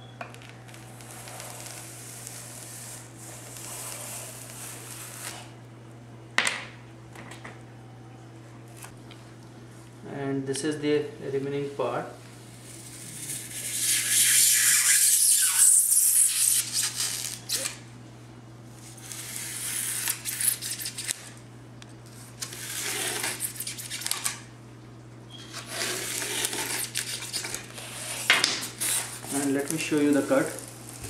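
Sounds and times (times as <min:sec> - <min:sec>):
knife cutting foam board: 0:22.4 - 0:24.4, 0:25.5 - 0:31.0.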